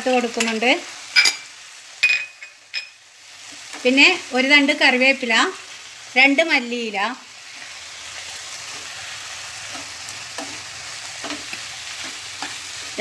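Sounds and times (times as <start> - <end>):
onions sizzling in frying pan: 0.0 - 13.0
spatula scraping pan: 7.4 - 13.0.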